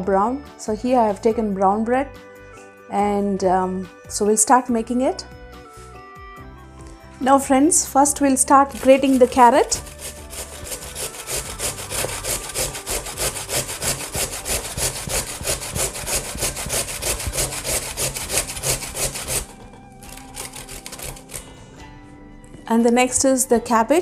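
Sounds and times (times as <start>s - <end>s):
carrot grated on metal grater: 8.5s - 21.5s.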